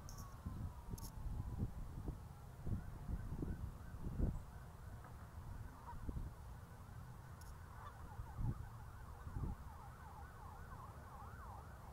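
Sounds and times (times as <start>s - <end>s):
faint siren sweeping: 0.0s - 5.0s, 5.6s - 11.9s.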